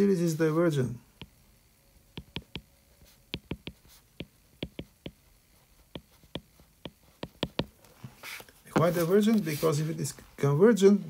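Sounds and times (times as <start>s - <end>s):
stylus tapping on glass screen: 2.1s - 2.7s, 3.3s - 5.2s, 5.9s - 7.7s.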